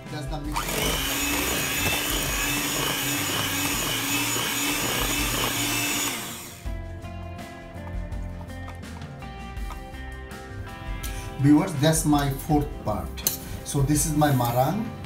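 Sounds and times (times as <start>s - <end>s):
background music: 0.0s - 15.0s
electric hand mixer whirring: 0.5s - 6.7s.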